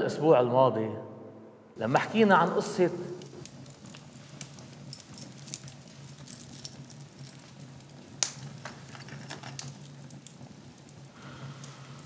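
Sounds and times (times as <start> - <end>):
wood fire crackling: 1.7 - 12.0.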